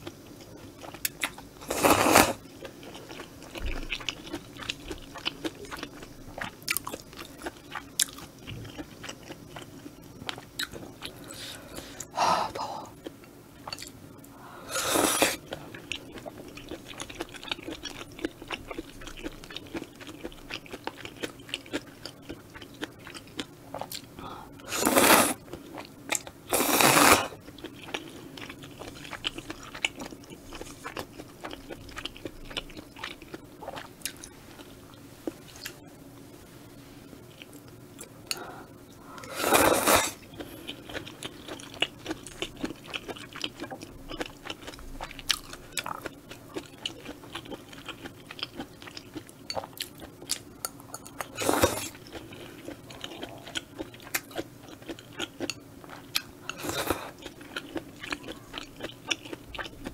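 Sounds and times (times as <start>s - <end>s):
slurping noodles: 1.6s - 2.4s, 14.6s - 15.4s, 24.7s - 25.4s, 26.5s - 27.4s, 39.2s - 40.2s.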